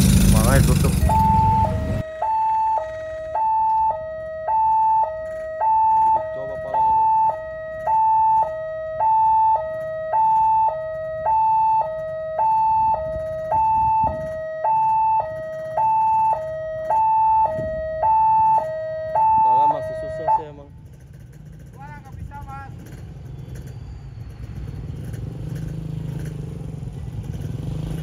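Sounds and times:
two-tone level crossing siren: 0.4 - 20.8.

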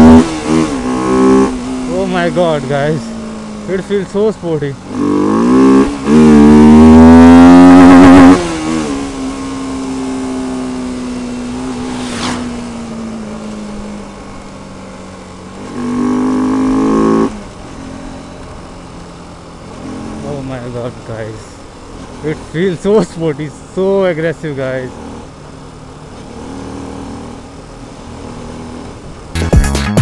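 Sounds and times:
motorcycle engine accelerating: 0.0 - 22.4.

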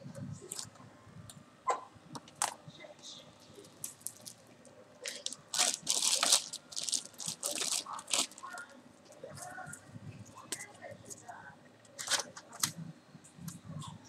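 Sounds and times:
plastic bag crinkling: 3.6 - 4.4, 5.0 - 8.6.

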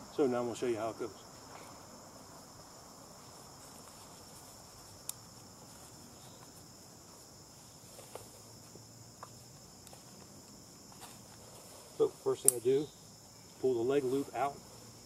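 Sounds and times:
insects chorus: 0.0 - 15.0.

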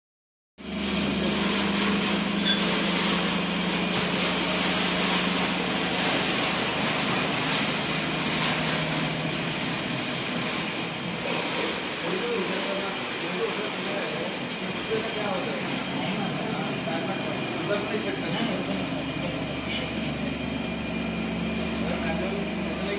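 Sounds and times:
machine power cabinet humming: 0.6 - 22.9.

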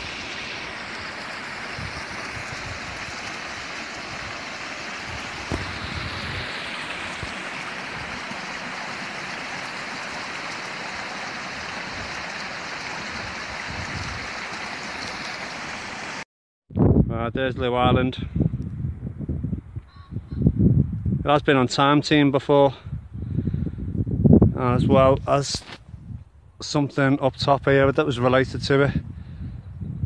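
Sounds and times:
stream rushing over rocks: 0.0 - 16.2.

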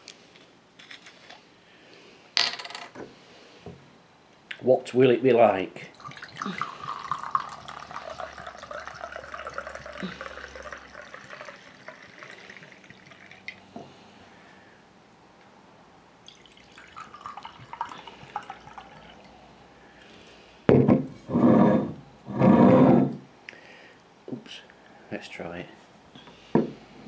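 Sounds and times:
wine pouring into a glass: 5.8 - 13.7, 16.2 - 19.5.

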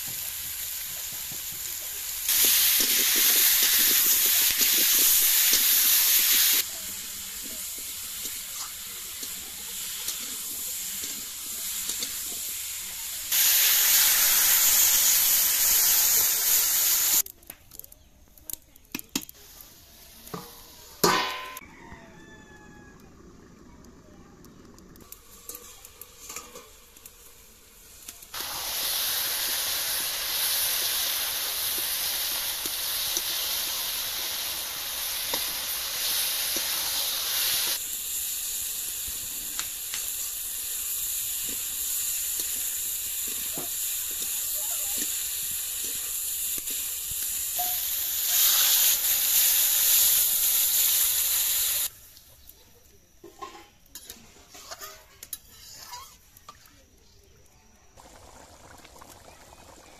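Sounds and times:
potatoes frying in a pan: 0.0 - 21.5, 23.9 - 59.9
metal clank: 20.4 - 21.6
metal spatula scraping pan: 53.3 - 56.2.

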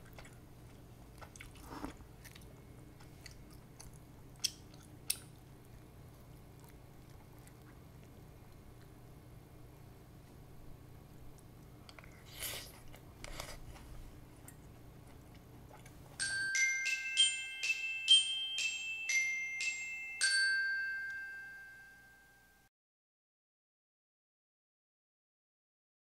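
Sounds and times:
bell-like mallet jingle: 16.2 - 22.7.

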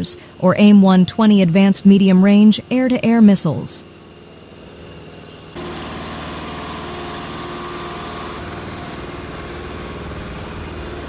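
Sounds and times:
vehicle engines running: 5.6 - 11.0.

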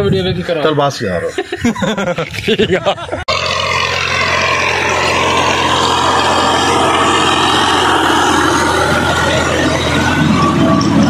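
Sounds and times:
tractor engine drone: 0.0 - 11.0
rotavator blades churning soil: 3.3 - 11.0.

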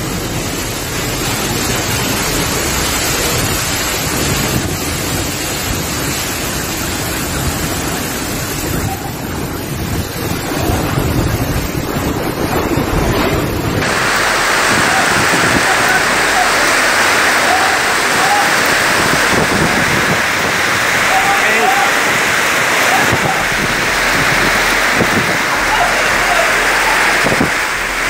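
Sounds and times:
heavy rain: 0.0 - 28.0
storm wind gusting: 0.0 - 28.0
wind buffeting microphone: 0.1 - 28.0.

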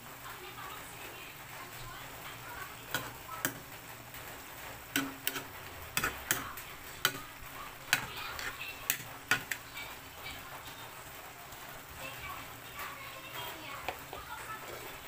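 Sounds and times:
metal ladle knocking a pot: 5.0 - 7.3.

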